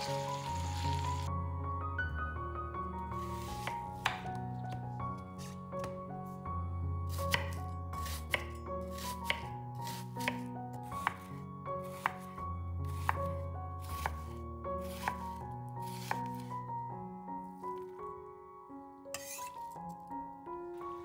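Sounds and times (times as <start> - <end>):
background music: 0.0 - 21.0
knife chopping on cutting board: 3.4 - 4.4, 7.1 - 11.3, 11.9 - 12.3, 12.9 - 16.5.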